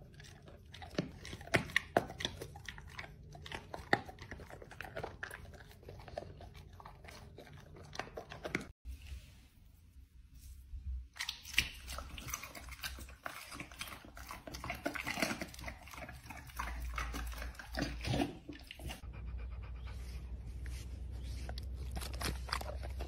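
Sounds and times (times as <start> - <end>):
dog chewing meat on bone: 0.0 - 8.8, 11.2 - 19.0.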